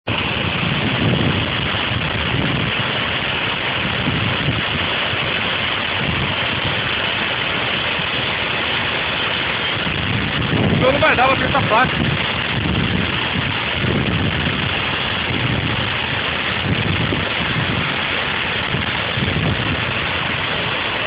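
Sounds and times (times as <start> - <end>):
waterfall rushing: 0.0 - 21.0.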